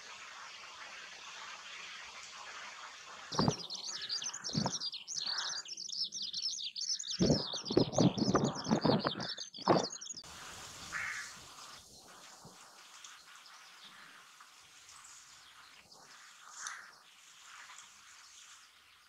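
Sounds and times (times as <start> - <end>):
steady hiss: 0.0 - 5.9, 10.2 - 19.0
birds chirping: 3.3 - 12.2
low rustling thumps: 3.4 - 3.7, 4.5 - 4.8, 7.2 - 10.0.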